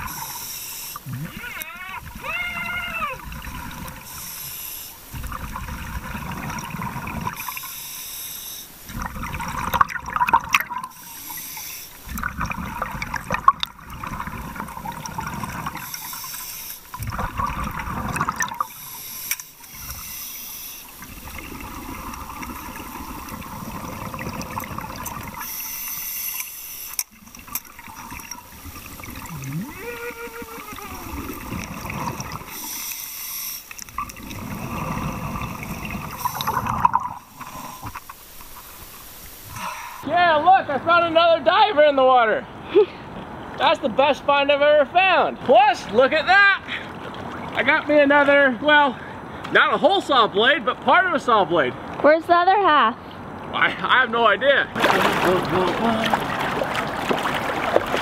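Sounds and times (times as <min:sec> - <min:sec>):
regulator hissing on inhale: 0:00.0 - 0:01.1, 0:03.9 - 0:05.2, 0:07.3 - 0:08.9, 0:10.9 - 0:12.1, 0:15.8 - 0:17.0, 0:18.6 - 0:21.0, 0:25.4 - 0:27.1, 0:32.4 - 0:33.9, 0:35.6 - 0:38.4, 0:39.2 - 0:40.1
exhaust bubbles underwater: 0:01.0 - 0:04.2, 0:05.0 - 0:07.6, 0:08.8 - 0:11.0, 0:12.0 - 0:16.3, 0:16.9 - 0:18.8, 0:20.9 - 0:25.6, 0:27.2 - 0:32.7, 0:33.9 - 0:37.9, 0:54.8 - 0:58.0
water sloshing: 0:01.0 - 0:07.7, 0:08.7 - 0:20.0, 0:20.8 - 0:25.6, 0:26.4 - 0:39.6, 0:45.3 - 0:49.5, 0:54.7 - 0:58.0.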